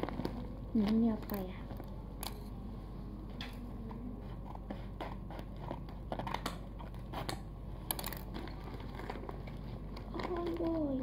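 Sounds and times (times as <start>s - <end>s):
plastic crinkling: 8.2s - 11.0s.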